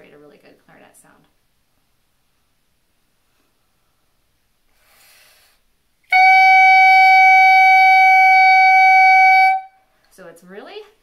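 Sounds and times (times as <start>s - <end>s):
faint breath in: 3.3s - 5.7s
shrill clarinet mouthpiece tone: 6.1s - 9.8s.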